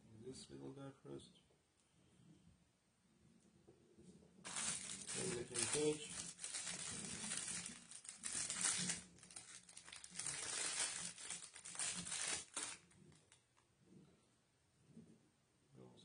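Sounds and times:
cloth crinkling and rustling: 0:04.4 - 0:13.6.

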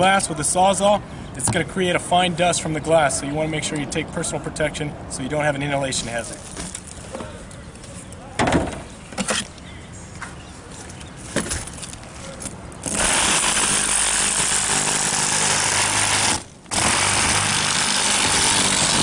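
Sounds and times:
reciprocating saw cutting glass: 0:12.8 - 0:19.0.

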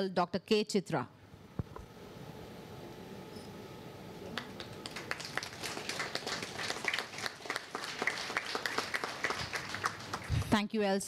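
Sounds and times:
audience clapping: 0:04.3 - 0:10.6.

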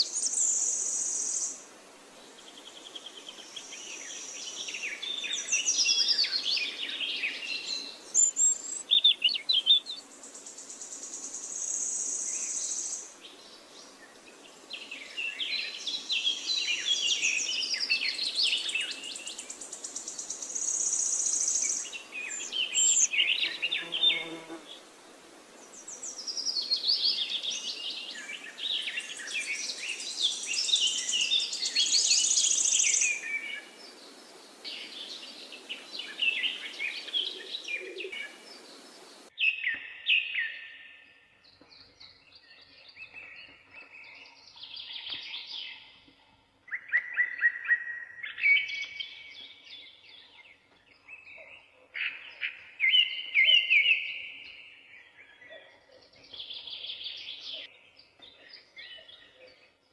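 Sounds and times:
birds chirping: 0:25.6 - 0:59.9.

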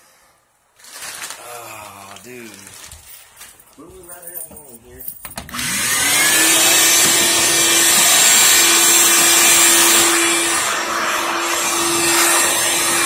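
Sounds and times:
shop vacuum motor running: 0:05.5 - 0:13.0.

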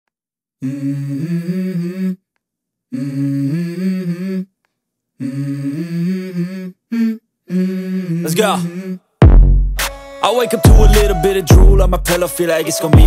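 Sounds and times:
person humming a melody: 0:00.6 - 0:02.2, 0:02.9 - 0:04.5, 0:05.2 - 0:09.1, 0:10.2 - 0:13.0.

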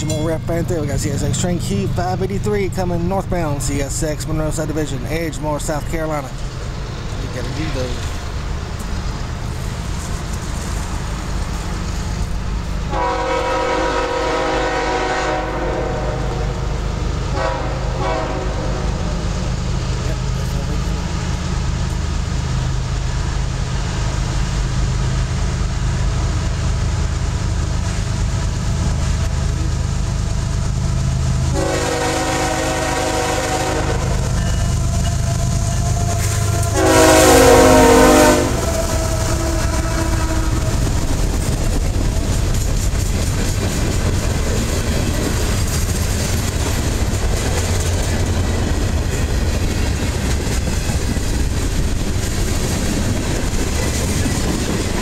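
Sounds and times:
diesel locomotive engine rumbling: 0:00.0 - 0:55.0
train air horn blasts: 0:12.9 - 0:16.6, 0:17.3 - 0:19.1, 0:31.5 - 0:40.9.

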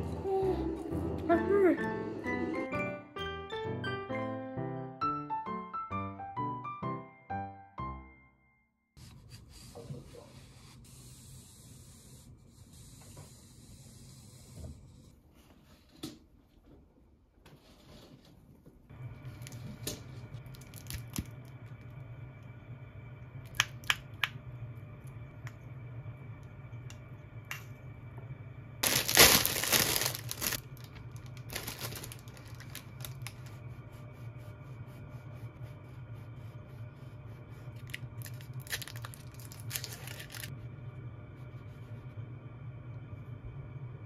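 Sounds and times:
steady low hum: 0:18.9 - 0:44.0
foil wrapper crinkling: 0:20.5 - 0:21.3, 0:28.8 - 0:33.4, 0:37.8 - 0:40.5
plastic bag tearing and crinkling: 0:28.8 - 0:33.4, 0:37.9 - 0:40.5.

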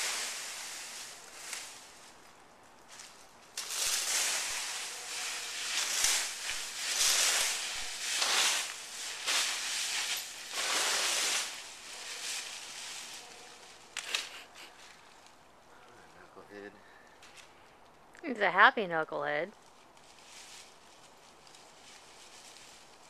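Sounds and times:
dry leaves rustling and crunching: 0:00.0 - 0:15.8, 0:19.5 - 0:23.0.

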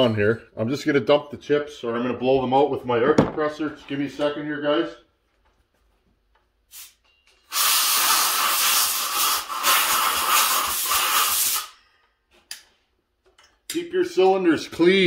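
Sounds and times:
compressed air hissing: 0:06.7 - 0:11.8.

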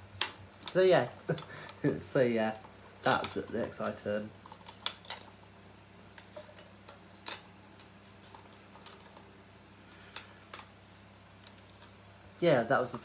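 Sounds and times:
small items clicking and tapping: 0:02.5 - 0:05.4, 0:06.0 - 0:09.3.

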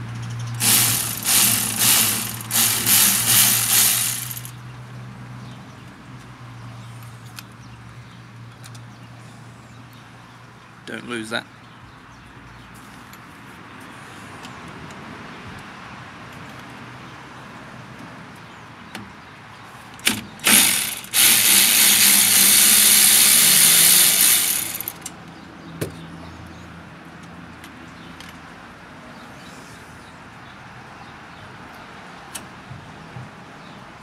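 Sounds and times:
cordless power driver running: 0:00.6 - 0:04.5, 0:20.4 - 0:25.0.

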